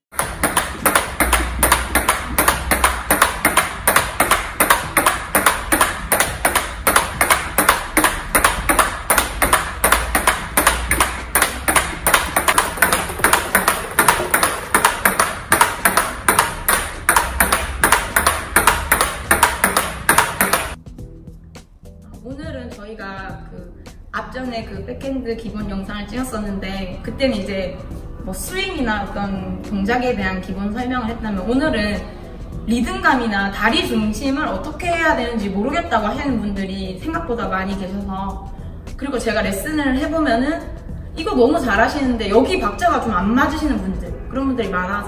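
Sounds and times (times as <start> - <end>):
table tennis ball clicking: 0.2 - 20.8.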